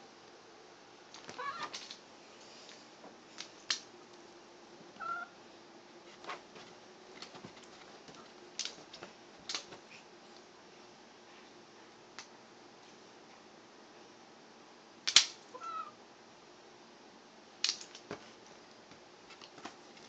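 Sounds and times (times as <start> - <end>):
cat meowing: 1.3 - 1.8, 5.0 - 5.3, 15.5 - 16.0
clicks and rustles on blanket: 6.1 - 10.5, 17.6 - 20.0.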